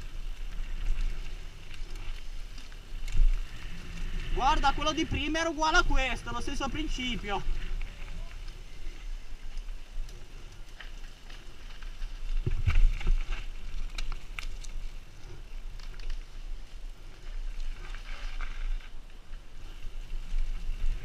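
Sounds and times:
bike tyres on dirt: 0.0s - 21.0s
wind rushing over microphone: 3.0s - 10.0s
bike rattling clicks: 7.6s - 16.4s.

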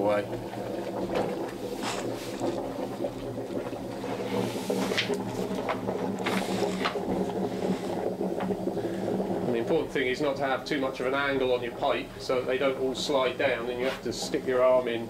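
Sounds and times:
steamers running: 0.0s - 15.0s
wood knocking and scraping on pipe: 4.8s - 7.0s.

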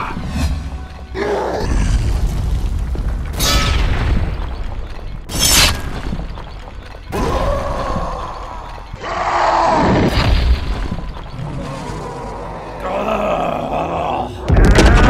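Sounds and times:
crashing debris: 14.5s - 15.0s
heavy impact booms: 14.5s - 15.0s.

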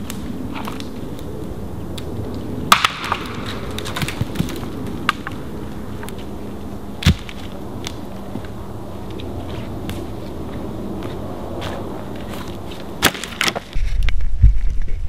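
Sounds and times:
twigs snapping: 0.0s - 6.4s, 7.0s - 13.8s
log landing thud: 7.0s - 7.5s, 13.0s - 13.7s.

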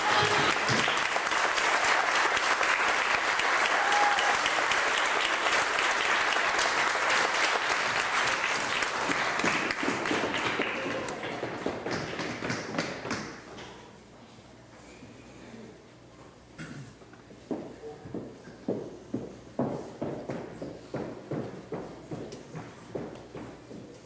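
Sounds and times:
audience applauding: 0.0s - 13.4s.

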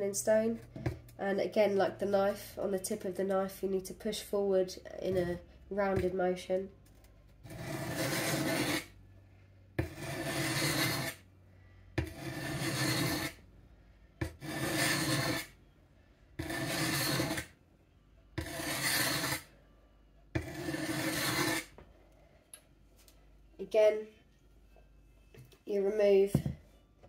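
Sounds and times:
blade scraping on sharpening stone: 7.4s - 8.9s, 9.8s - 11.2s, 12.0s - 13.4s, 14.2s - 15.6s, 16.4s - 17.5s, 18.4s - 19.5s, 20.4s - 21.7s.

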